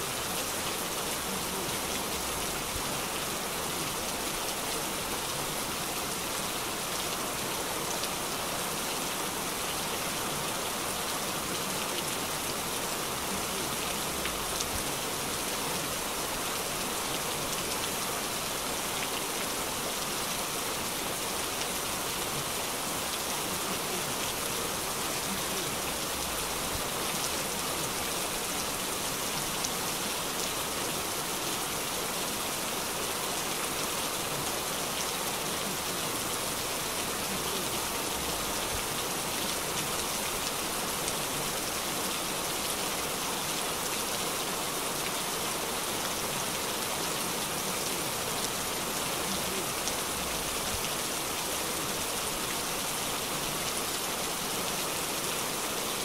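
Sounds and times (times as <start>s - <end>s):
heavy rain on pavement: 0.0s - 56.0s.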